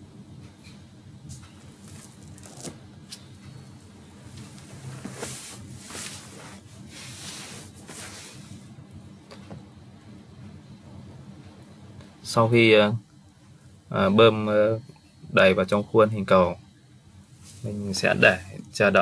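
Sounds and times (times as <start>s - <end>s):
soft rubbing and scraping: 4.2s - 8.7s, 17.3s - 18.3s.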